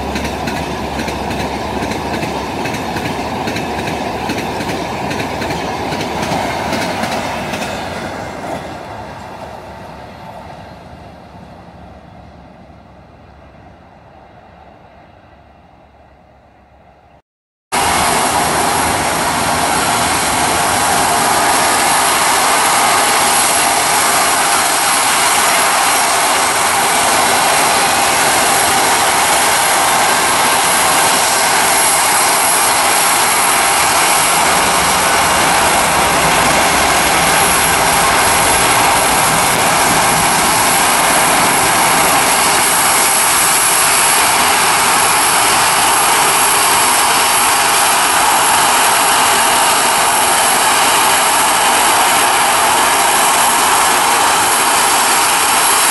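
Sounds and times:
jet engines roaring: 17.7s - 55.9s.

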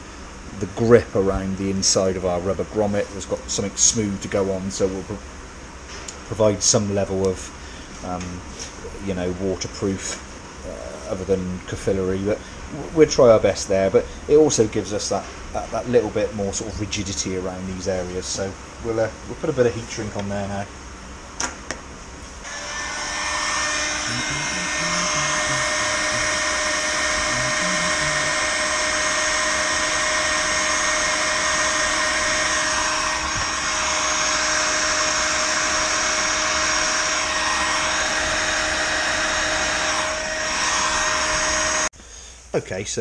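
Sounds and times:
heat gun blowing and humming: 22.4s - 41.9s.

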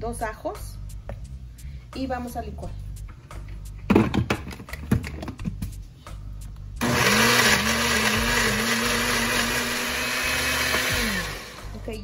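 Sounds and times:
blender running: 6.8s - 11.8s.

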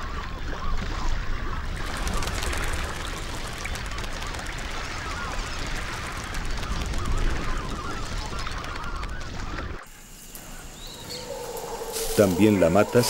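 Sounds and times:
ducks whistling: 10.4s - 13.0s.

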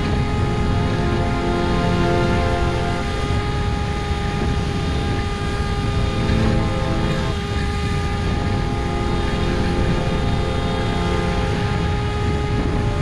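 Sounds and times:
electric motor and propeller whine: 0.0s - 13.0s
wind rumble on microphone: 0.0s - 13.0s.

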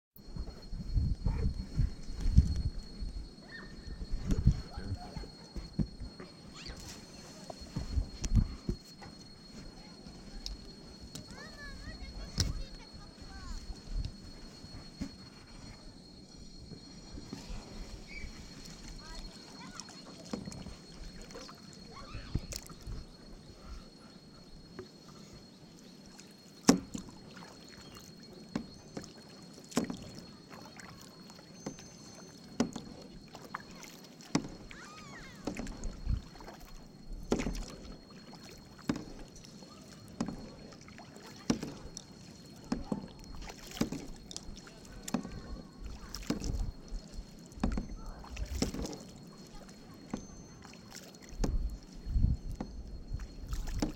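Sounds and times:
canoe paddle strokes in water: 0.2s - 53.9s.

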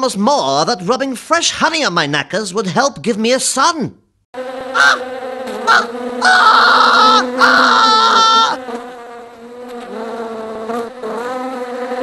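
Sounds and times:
bees buzzing: 4.4s - 12.0s.

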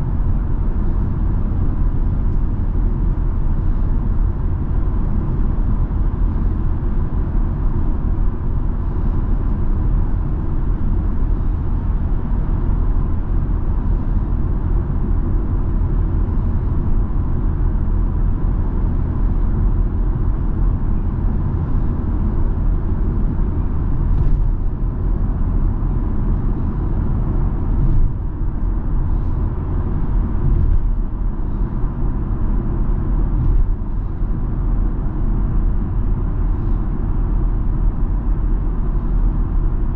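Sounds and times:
car engine drone: 0.0s - 39.9s
road and tyre noise: 0.0s - 39.9s.

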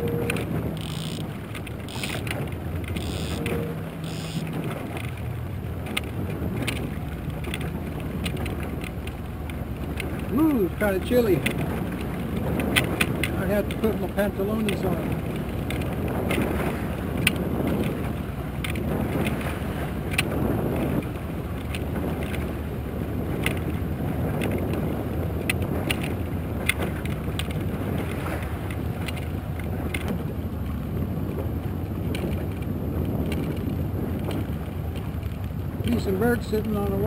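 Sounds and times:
outboard motor running: 0.0s - 37.0s
water washing along hull: 0.0s - 37.0s
sharp ticks: 0.8s - 5.2s.

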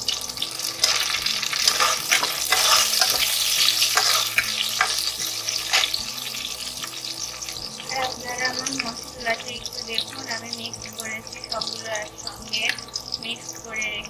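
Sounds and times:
onions sizzling in hot oil: 0.0s - 14.0s
spatula scraping pan bottom: 0.7s - 7.1s.

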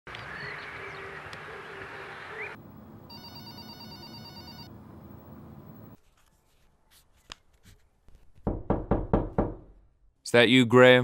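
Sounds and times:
telephone ringing with warbling trill: 3.1s - 4.7s.

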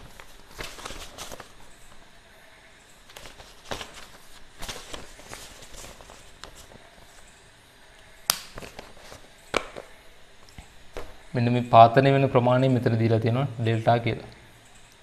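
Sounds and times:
paper rustling: 0.0s - 2.0s, 3.1s - 7.3s, 8.5s - 9.9s.

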